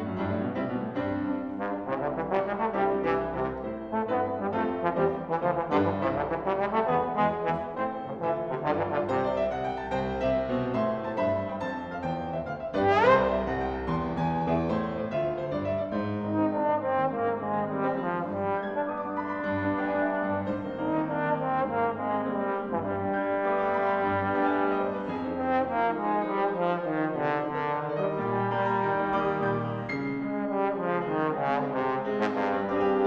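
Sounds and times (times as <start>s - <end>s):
piano accompaniment: 0.0s - 33.0s
trombone melody: 1.3s - 33.0s.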